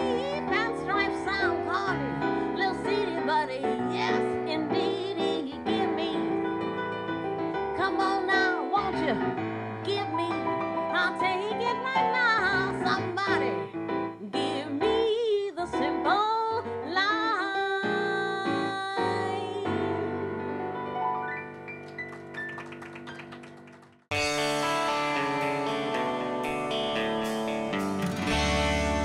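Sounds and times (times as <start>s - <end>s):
woman singing jazz: 0.0s - 6.8s, 7.6s - 20.7s
electric keyboard chords: 0.0s - 29.0s.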